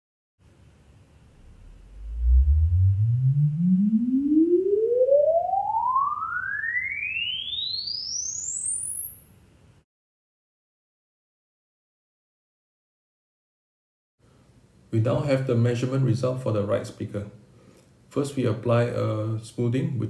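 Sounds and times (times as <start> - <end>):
rising test tone sweep: 1.2 - 9.7
faint background noise: 14.2 - 20.0.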